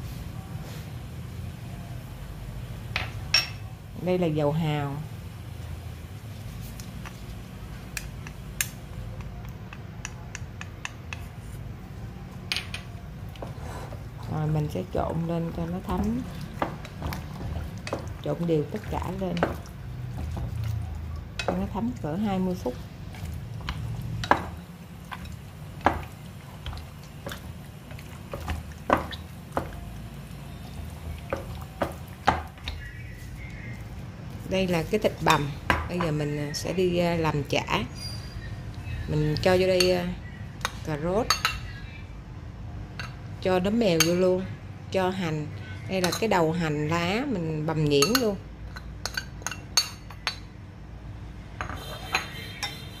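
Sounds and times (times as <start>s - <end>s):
low steady hum: 1.3s - 53.0s
meat squishing: 13.2s - 35.5s.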